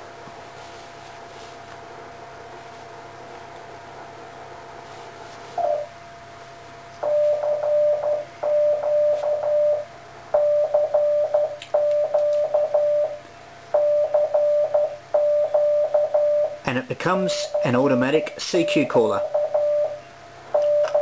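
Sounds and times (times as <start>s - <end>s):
morse code tone: 7.0s - 13.2s, 13.8s - 16.6s, 17.3s - 20.0s, 20.6s - 21.0s.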